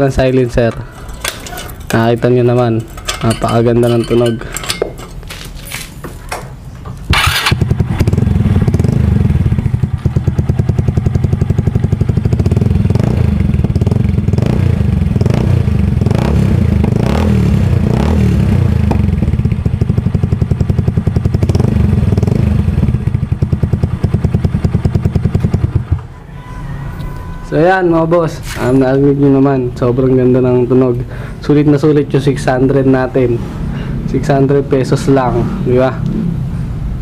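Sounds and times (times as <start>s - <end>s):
metal clinks: 0.3s - 6.5s
scooter engine with open exhaust: 7.1s - 26.2s.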